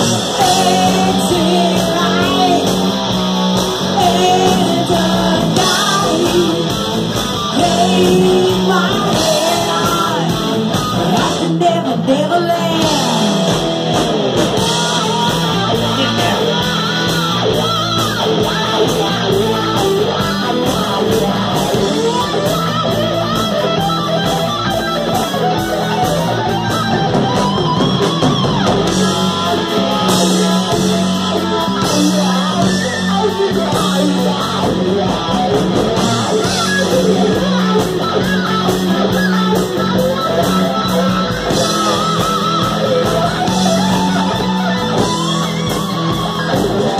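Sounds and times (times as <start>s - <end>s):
distorted electric guitar: 0.0s - 46.9s
drum kit: 0.0s - 46.9s
woman singing: 0.3s - 2.9s, 3.9s - 6.8s, 7.5s - 13.4s.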